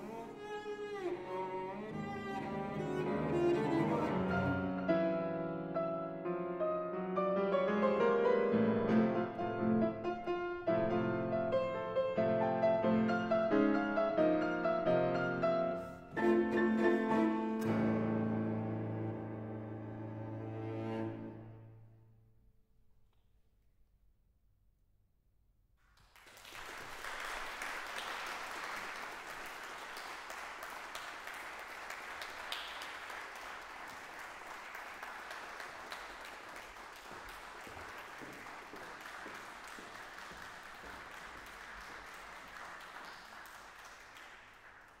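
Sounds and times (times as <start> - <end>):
audience applause: 26.0 - 45.0.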